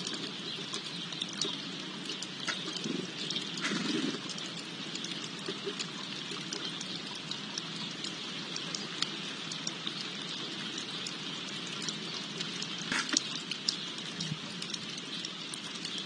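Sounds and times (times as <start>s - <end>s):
light ticks: 0.0s - 10.4s
fountain water splashing: 0.0s - 16.0s.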